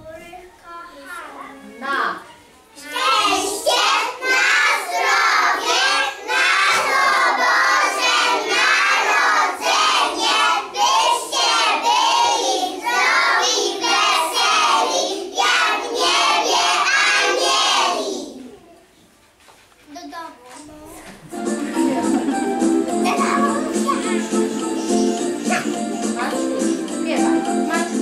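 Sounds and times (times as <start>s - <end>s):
young children singing: 2.8s - 18.6s, 22.9s - 28.0s.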